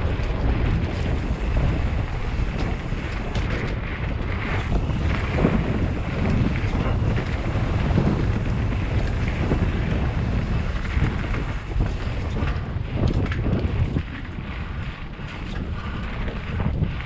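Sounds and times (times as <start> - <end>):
bike knocking and rattling: 0.0 - 17.0
tyres rumbling over dirt: 0.0 - 17.0
wind buffeting camera: 0.0 - 17.0.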